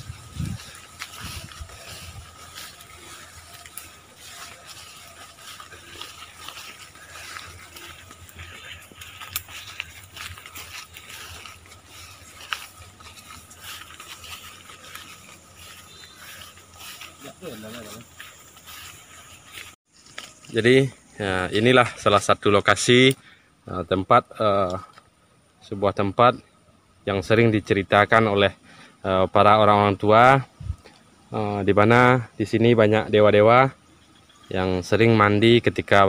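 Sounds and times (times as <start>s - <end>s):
footsteps crunching through grass: 0.0s - 22.2s
sharp clicks and ticks: 8.0s - 11.8s.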